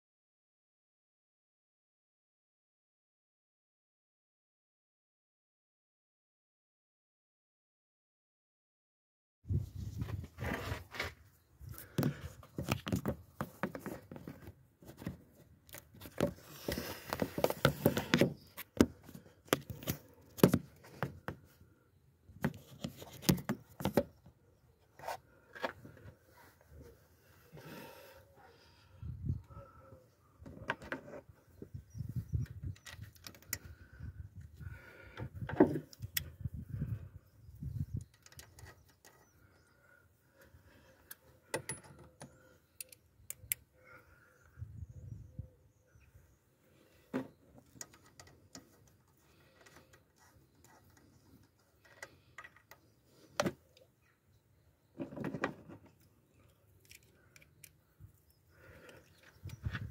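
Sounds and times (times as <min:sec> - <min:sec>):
small metallic clicks and knocks: 0:41.0 - 0:43.6, 0:47.6 - 0:53.5, 0:55.0 - 0:57.8
light clicks on metal parts: 0:56.0 - 0:57.9.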